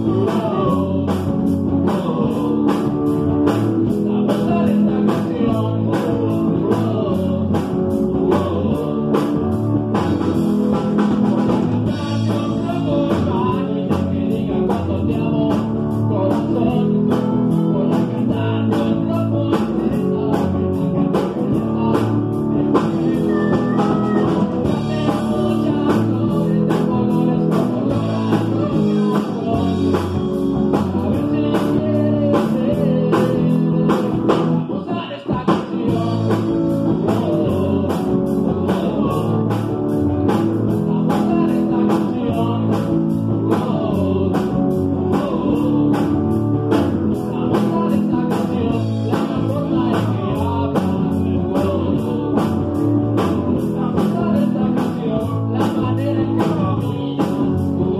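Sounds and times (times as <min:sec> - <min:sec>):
drum kit beat: 0:00.0 - 0:57.9
electric bass: 0:00.0 - 0:57.9
electric guitar: 0:00.0 - 0:57.9
man singing into a microphone: 0:00.0 - 0:57.9.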